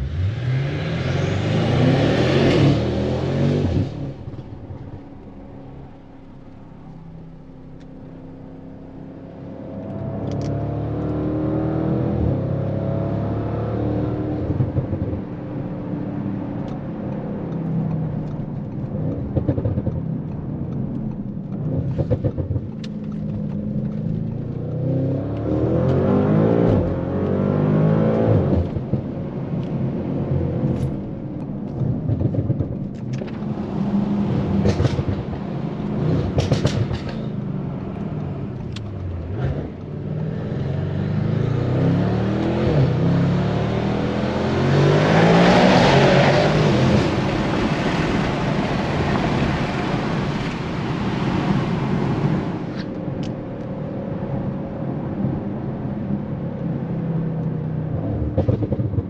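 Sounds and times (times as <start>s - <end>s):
car engine accelerating through gears: 0.0s - 59.0s
wind and tyre noise: 0.0s - 59.0s
sharp clicks and cracks: 16.6s - 24.8s.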